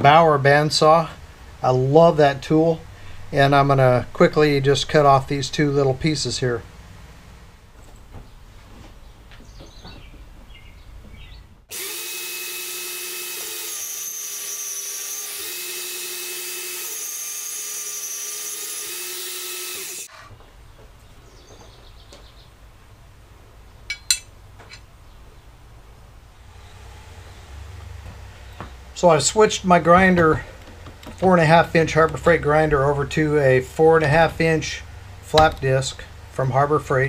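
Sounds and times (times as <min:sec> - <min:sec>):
band saw cutting steel: 0:11.7 - 0:20.1.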